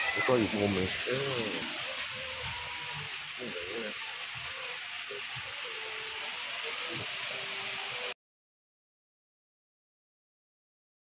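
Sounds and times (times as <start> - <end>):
misting system hissing: 0.0 - 8.1.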